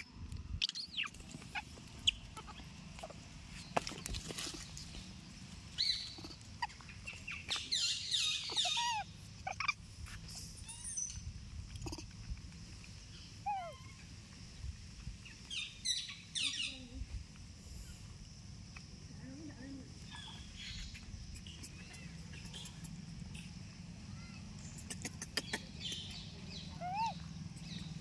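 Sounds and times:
high-pitched animal squeaks: 8.2s - 9.8s, 13.4s - 14.0s, 26.7s - 27.2s
sharp clicks: 24.6s - 26.2s.

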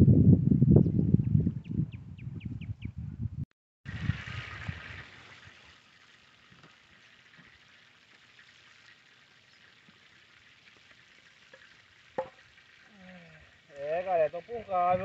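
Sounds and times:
sausage sizzling in a pan: 4.9s - 13.8s.

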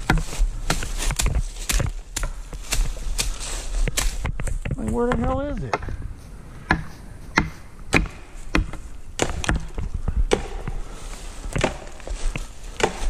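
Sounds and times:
footsteps crunching dry leaves: 0.0s - 7.4s, 10.8s - 13.0s.

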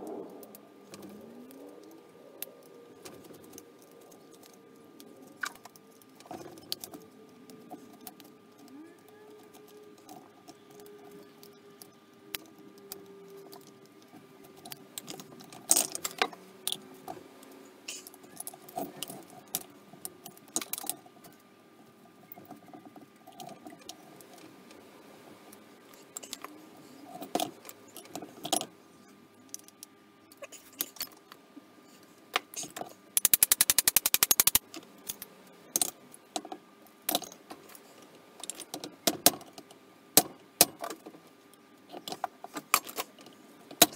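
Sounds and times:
fast even run of clicks: 33.2s - 35.3s.

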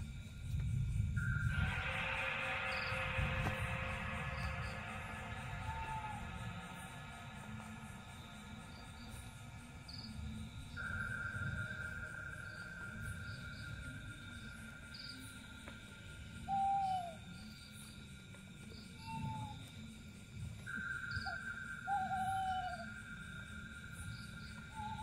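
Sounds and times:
night insects droning and chirping: 0.0s - 25.0s
owl hooting: 1.4s - 7.0s, 16.4s - 17.4s, 18.9s - 19.7s, 20.6s - 23.2s, 24.5s - 25.0s.

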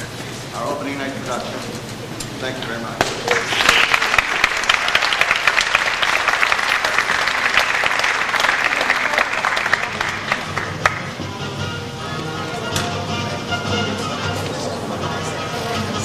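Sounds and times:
audience applauding: 3.2s - 11.2s.

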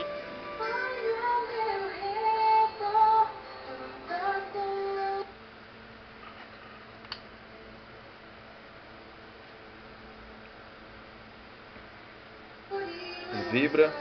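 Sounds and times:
high voice singing with music: 0.0s - 5.4s, 12.7s - 14.0s
faint steady hum: 0.0s - 14.0s.

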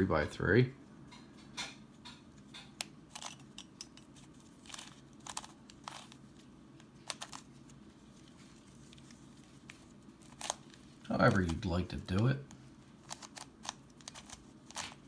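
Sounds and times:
plastic puzzle clicking and scraping: 2.1s - 6.2s, 6.8s - 7.8s, 9.7s - 15.0s.

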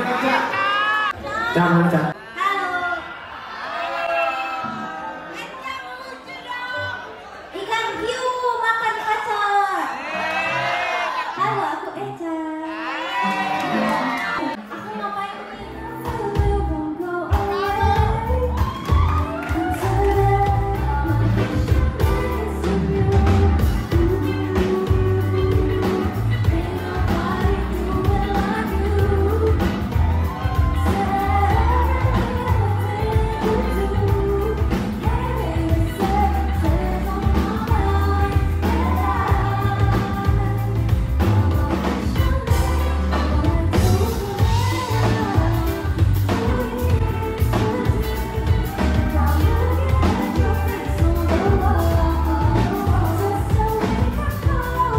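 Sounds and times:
woman singing pop song: 13.3s - 54.9s
live band with guitar and drums: 15.7s - 54.9s.

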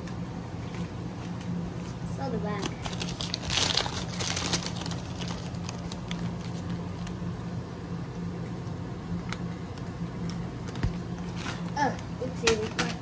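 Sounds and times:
steady low hum: 0.0s - 13.0s
crackers rustling in foil bag: 2.6s - 7.2s.

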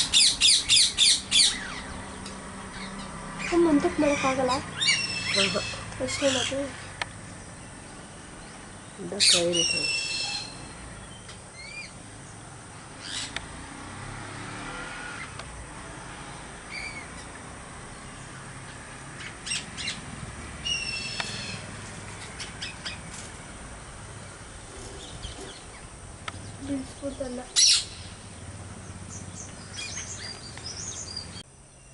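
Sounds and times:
parrots screeching: 0.0s - 6.7s, 9.2s - 10.8s, 11.6s - 11.9s, 13.0s - 13.4s, 16.7s - 17.3s, 19.2s - 20.0s, 20.6s - 23.0s, 27.6s - 28.1s.

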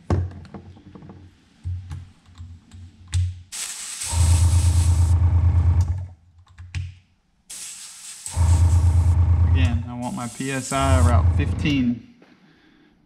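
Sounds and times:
airbrush hissing: 3.5s - 5.2s, 7.5s - 9.2s, 10.0s - 11.2s
air compressor humming: 3.6s - 6.0s, 7.5s - 11.8s.

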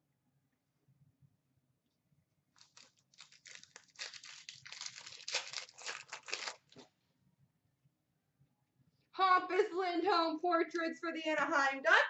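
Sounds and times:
foil wrapper crinkling and tearing: 2.6s - 6.9s.

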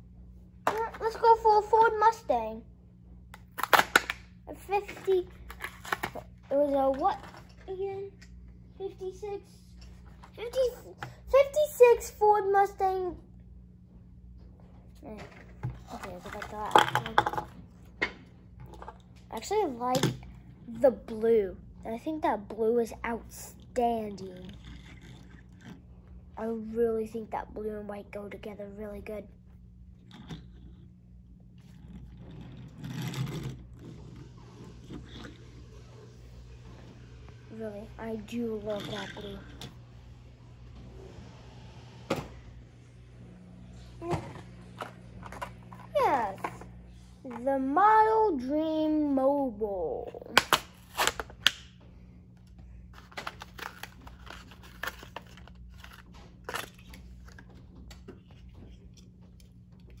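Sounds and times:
plastic packaging crinkling: 53.0s - 57.5s.

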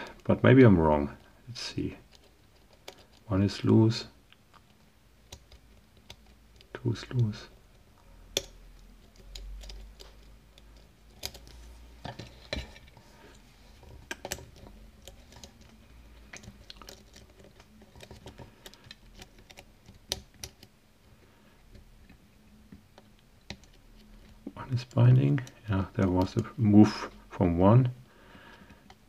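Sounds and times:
lock pick clicking and scraping: 8.2s - 20.7s.

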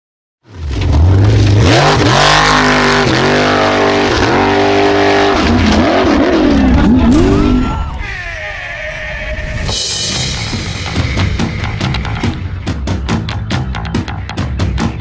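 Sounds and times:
racing engine revving: 0.5s - 7.9s.

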